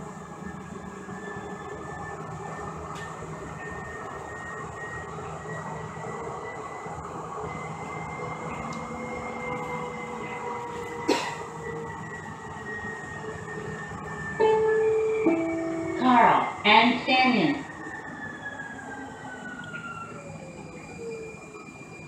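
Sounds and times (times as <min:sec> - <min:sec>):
rumble of train wheels: 0:00.0 - 0:22.0
thin high whine: 0:14.4 - 0:17.7.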